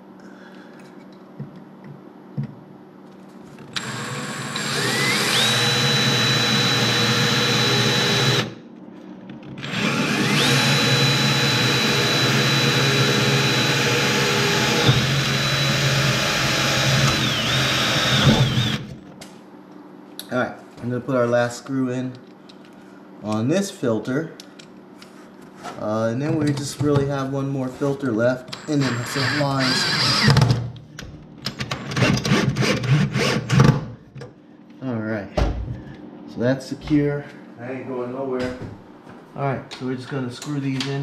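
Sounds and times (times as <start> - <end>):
power drill whining: 3.7 - 8.6, 9.6 - 19.0, 28.5 - 30.4.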